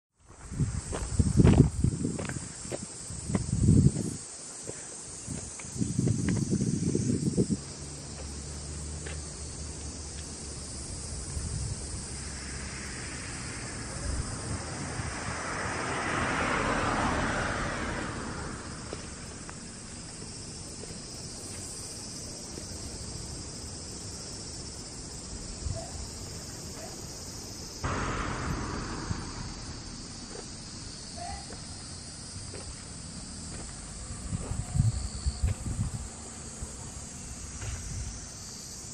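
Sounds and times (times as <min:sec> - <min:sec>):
insects droning: 0:00.2 - 0:38.9
wind rumble on microphone: 0:00.3 - 0:04.3, 0:05.1 - 0:07.8, 0:10.7 - 0:19.3, 0:27.8 - 0:31.0, 0:33.4 - 0:38.3
vehicle passing: 0:07.6 - 0:20.4, 0:27.8 - 0:37.7.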